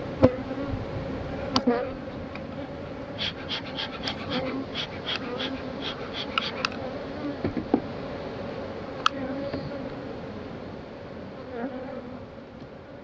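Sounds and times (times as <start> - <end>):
honeybees buzzing: 0.2 - 10.6
bee smoker bellows puffing: 3.0 - 6.9.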